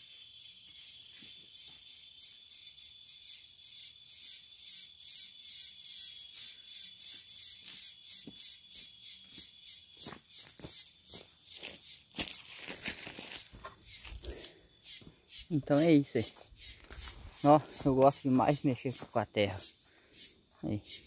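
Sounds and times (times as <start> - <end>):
insects chirping in pulses: 0.0 - 21.0
footsteps: 9.4 - 14.3, 16.3 - 19.2.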